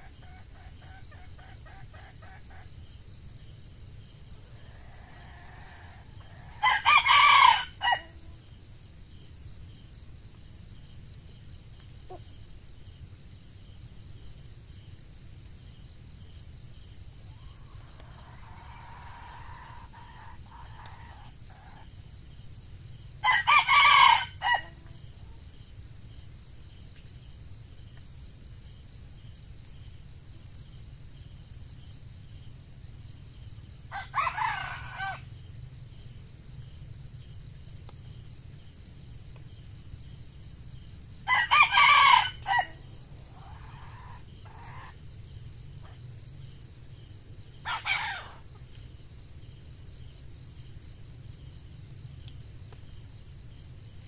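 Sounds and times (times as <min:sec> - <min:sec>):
rooster crowing: 0:04.6 - 0:08.2, 0:17.6 - 0:21.8, 0:23.2 - 0:24.9, 0:33.9 - 0:35.3, 0:41.2 - 0:45.0, 0:47.6 - 0:48.4.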